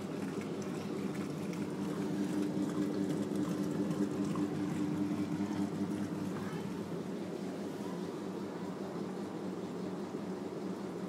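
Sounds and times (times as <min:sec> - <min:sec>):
water pouring into washer tub: 0:00.0 - 0:06.8
washing machine hum: 0:00.0 - 0:11.0.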